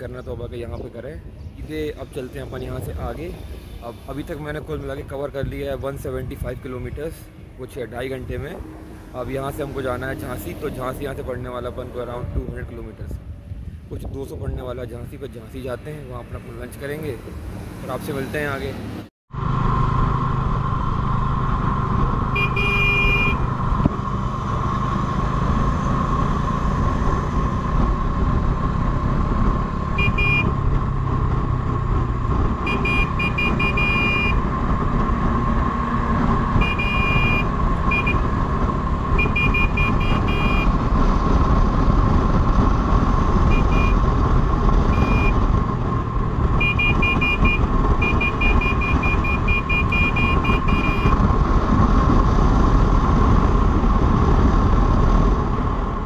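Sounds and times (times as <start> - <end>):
wind and road noise: 0.0 - 56.0
motorcycle engine: 19.3 - 56.0.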